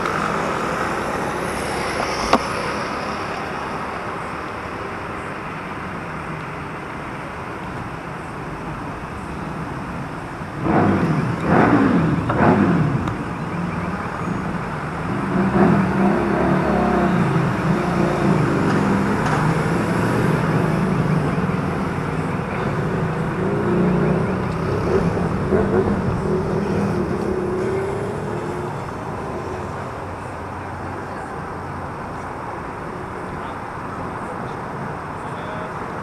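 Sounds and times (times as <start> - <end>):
vehicle engines running: 0.0 - 36.0
vehicle passing by: 15.0 - 31.3.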